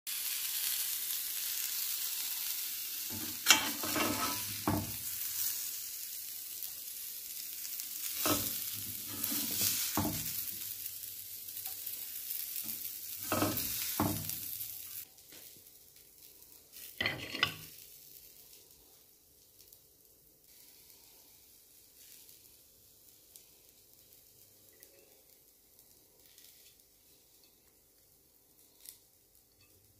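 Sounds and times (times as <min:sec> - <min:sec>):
food sizzling in a frying pan: 0:00.1 - 0:29.9
utensil scraping and knocking pan: 0:03.1 - 0:05.0, 0:08.2 - 0:10.4, 0:13.2 - 0:14.3, 0:17.0 - 0:17.7.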